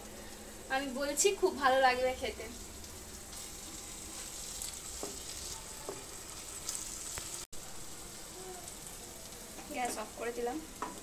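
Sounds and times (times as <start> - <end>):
masala sizzling in oil: 0.0 - 11.0
spatula scraping and tapping pan: 4.6 - 7.3.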